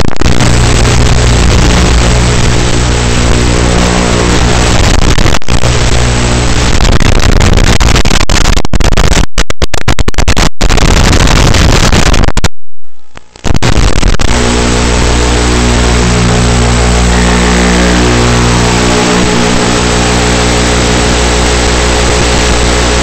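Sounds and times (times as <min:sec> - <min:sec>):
buzzing hum: 0:00.0 - 0:08.1, 0:11.9 - 0:23.0
static hiss: 0:00.0 - 0:09.0, 0:13.0 - 0:23.0
signal crackling: 0:00.0 - 0:23.0.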